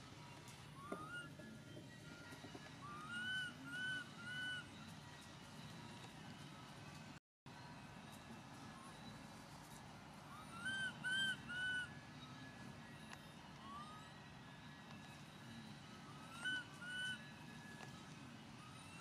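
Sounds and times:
low background hum: 0.0s - 19.0s
high whistle-like animal calls: 2.8s - 4.8s, 10.3s - 12.0s.

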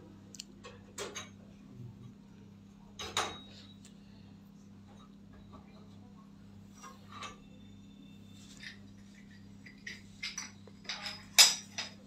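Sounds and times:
steady low hum: 0.0s - 12.0s
metal burner parts clinking: 8.6s - 12.0s.

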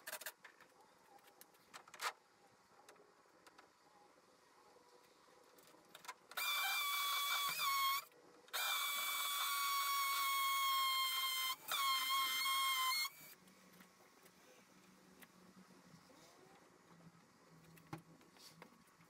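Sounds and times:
power drill whining: 6.4s - 13.4s.

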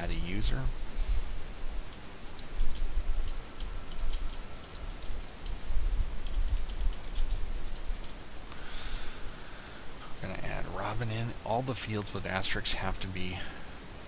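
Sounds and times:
keyboard typing: 2.4s - 8.2s.

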